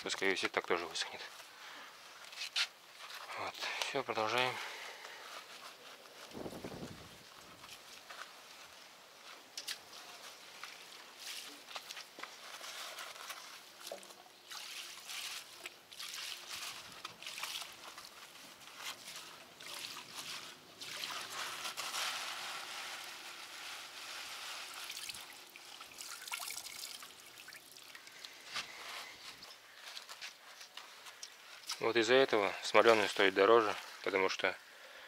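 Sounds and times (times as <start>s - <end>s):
liquid dripping into a pail: 24.9s - 28.3s.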